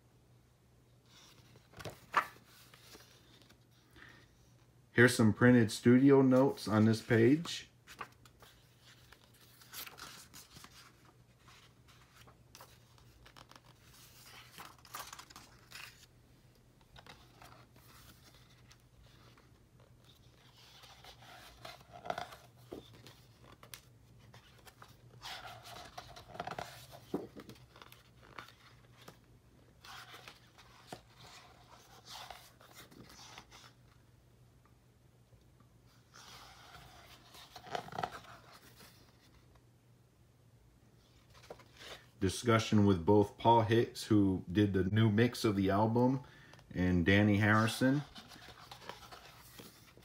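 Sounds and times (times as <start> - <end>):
stiff paper pages turning: 1.1 - 4.0, 6.0 - 16.1, 16.8 - 34.0, 35.9 - 39.5, 41.1 - 42.7, 47.2 - 50.0.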